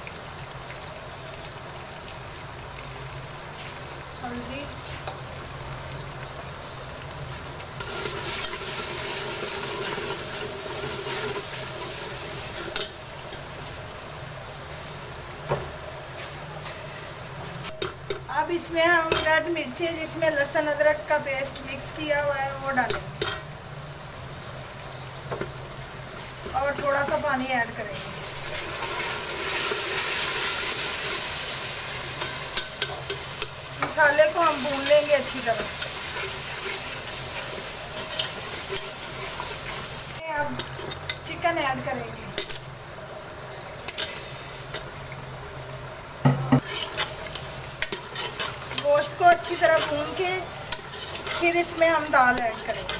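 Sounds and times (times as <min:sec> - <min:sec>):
masala sizzling in hot ghee: 0:00.0 - 0:52.9
ladle stirring in metal pot: 0:07.8 - 0:12.9, 0:35.6 - 0:41.2, 0:46.6 - 0:52.9
ladle clinking: 0:16.6 - 0:17.4.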